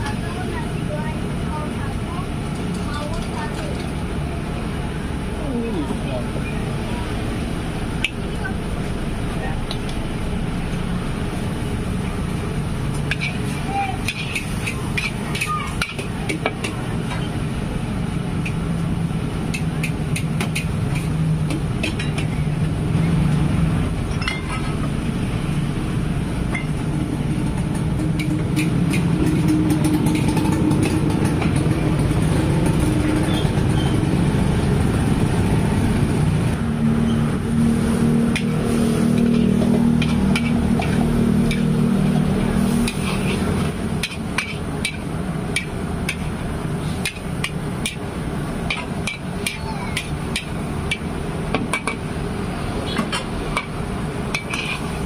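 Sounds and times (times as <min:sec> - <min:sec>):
vegetables sizzling in a wok: 0:10.9 - 0:20.1, 0:38.4 - 0:55.0
metal spatula scraping wok: 0:12.9 - 0:16.0, 0:38.3 - 0:48.0, 0:54.3 - 0:55.0.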